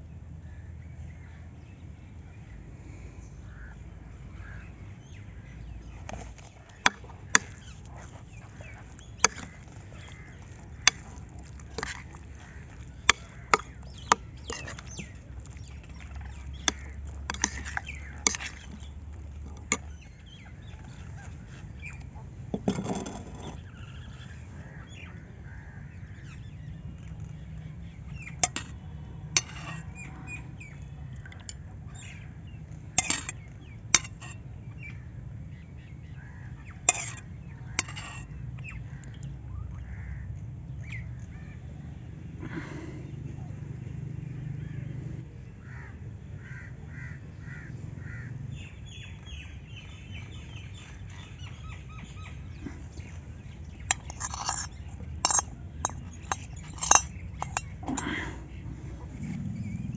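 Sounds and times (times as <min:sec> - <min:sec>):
birds calling: 0:00.0 - 0:59.9
steady low hum: 0:00.0 - 0:59.9
metal spoon scraping a bowl: 0:06.1 - 0:20.0, 0:20.7 - 0:24.0, 0:28.4 - 0:30.1, 0:32.9 - 0:34.4, 0:36.9 - 0:38.4, 0:52.6 - 0:59.4.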